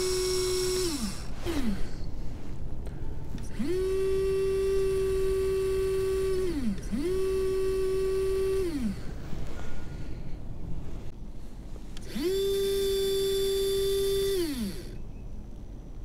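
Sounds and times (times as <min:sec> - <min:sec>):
small electric pump motor whining: 0:00.0 - 0:02.1, 0:03.4 - 0:09.2, 0:12.0 - 0:15.0.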